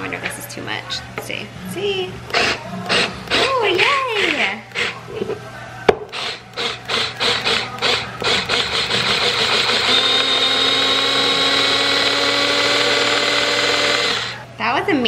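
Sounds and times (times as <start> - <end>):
electric chopper motor whirring: 6.1 - 14.4.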